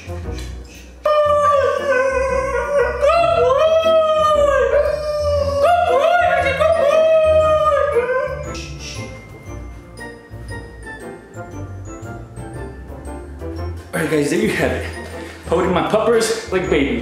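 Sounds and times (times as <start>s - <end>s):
background music: 0.0s - 17.0s
dog howling: 1.0s - 8.6s.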